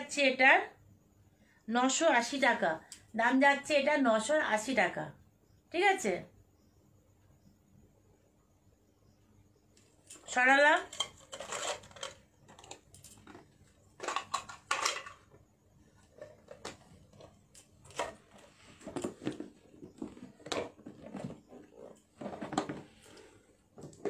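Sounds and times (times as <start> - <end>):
jewellery clicking and clinking: 10.1 - 13.4.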